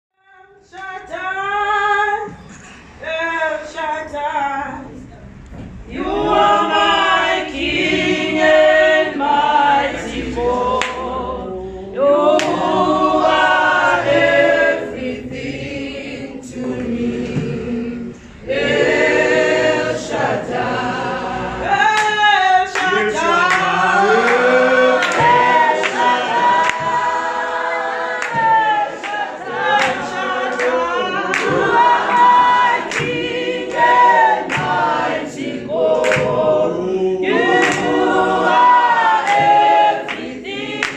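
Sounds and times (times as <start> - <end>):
church choir singing gospel: 0.2 - 40.9.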